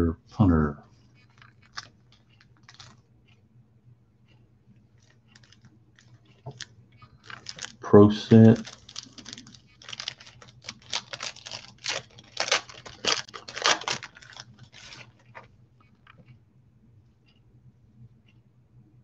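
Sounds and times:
faint handling of cards: 0:00.9 - 0:03.4, 0:04.3 - 0:16.4
wrapper tearing and crinkling: 0:01.3 - 0:01.9, 0:02.6 - 0:03.0, 0:06.5 - 0:15.5.

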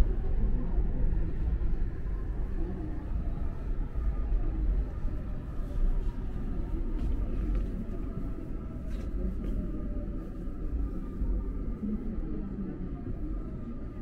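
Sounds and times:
faint steady whine: 0:00.0 - 0:14.0
subway train rumble: 0:00.0 - 0:14.0.

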